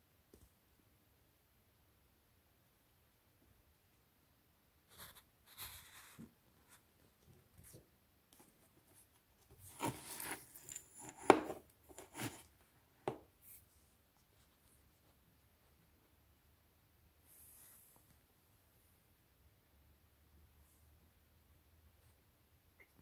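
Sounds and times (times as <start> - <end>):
rustling and scraping: 4.9 - 15.2.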